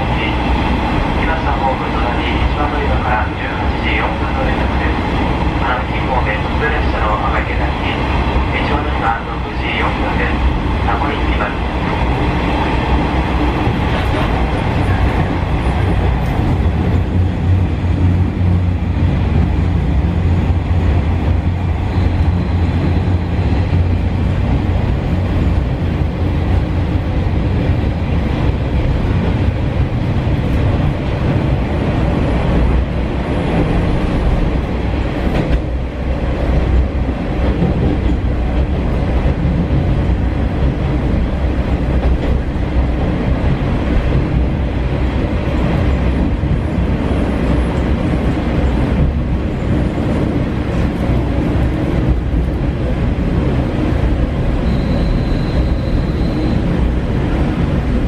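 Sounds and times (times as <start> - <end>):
train wheels clattering on rails: 33.4 - 35.8, 36.4 - 44.6.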